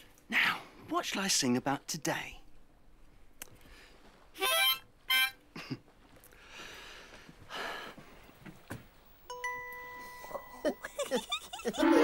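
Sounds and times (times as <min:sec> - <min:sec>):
harmonica chords: 0:04.4 - 0:05.4, 0:11.5 - 0:12.0.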